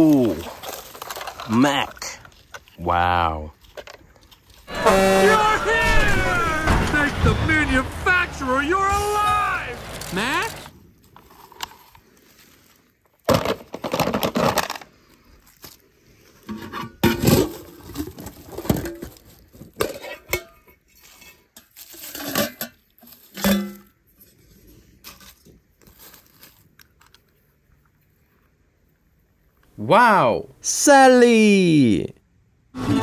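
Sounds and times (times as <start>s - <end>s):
metal tins and toy cars clinking: 16.6s - 26.6s.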